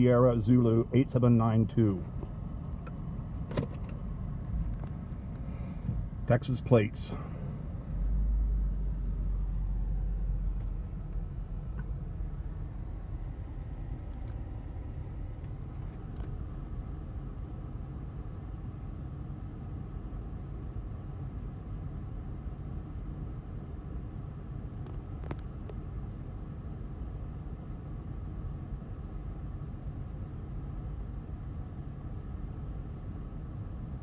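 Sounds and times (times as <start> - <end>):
car engine rumble inside cabin: 0.0 - 34.0.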